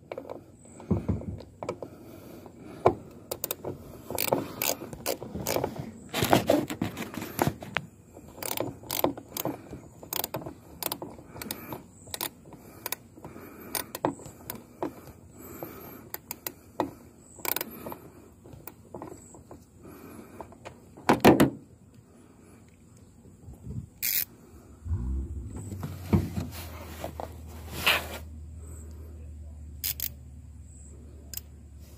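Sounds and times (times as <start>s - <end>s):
hand tools clicking on metal: 4.2s - 5.7s, 8.4s - 13.0s.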